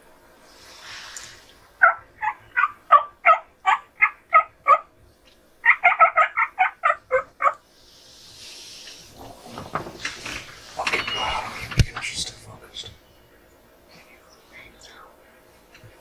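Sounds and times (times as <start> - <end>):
wild turkey yelping: 1.8 - 5.0, 5.6 - 7.6.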